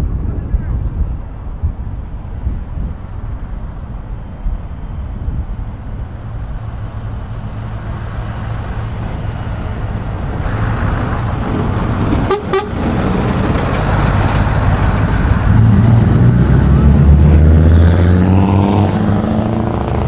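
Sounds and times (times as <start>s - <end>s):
heavy truck engine running: 2.1s - 17.7s
truck horn toots: 12.2s - 12.9s.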